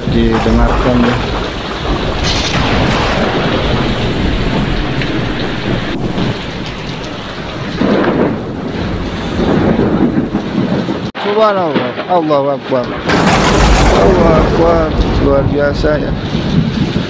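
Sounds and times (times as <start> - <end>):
heavy rain pouring on street: 0.0 - 17.0
thunder rumbling: 0.0 - 17.0.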